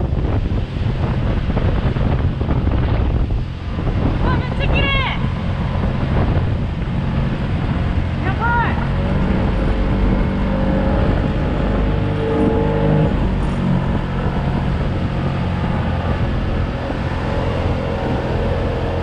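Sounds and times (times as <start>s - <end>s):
motorboat engine running: 0.0s - 19.0s
water rushing: 0.0s - 19.0s
wind: 0.0s - 19.0s.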